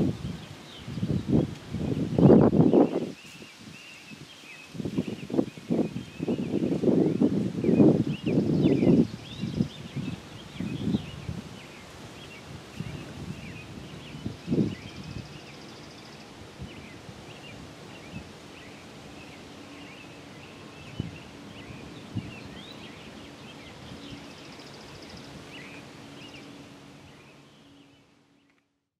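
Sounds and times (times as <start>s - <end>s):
wind thumps on microphone: 0.0s - 3.8s, 4.8s - 11.6s, 12.6s - 15.3s
small birds chirping: 0.0s - 28.7s.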